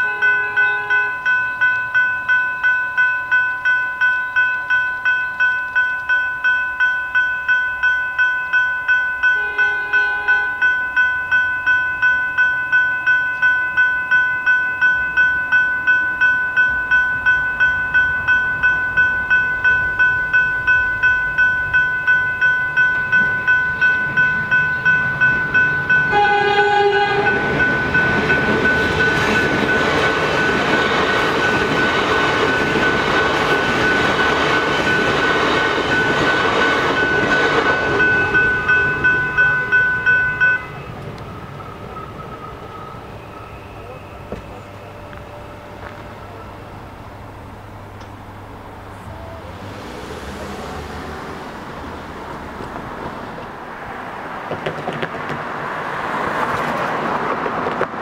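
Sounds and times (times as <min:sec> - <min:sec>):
train horn: 0:00.0 - 0:01.3, 0:09.2 - 0:10.8, 0:26.0 - 0:27.7
level crossing bells ringing: 0:00.0 - 0:52.7
electric train passing: 0:00.0 - 0:58.0.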